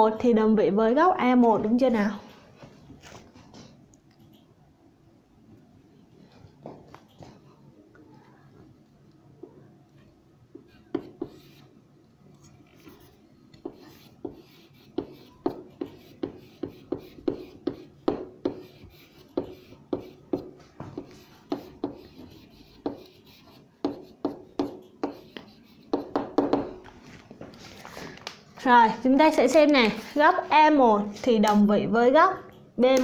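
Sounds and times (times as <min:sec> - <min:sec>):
writing taps and scrapes: 0:10.0 - 0:11.7, 0:12.7 - 0:27.6
soft rubbing strokes on board: 0:12.7 - 0:26.2.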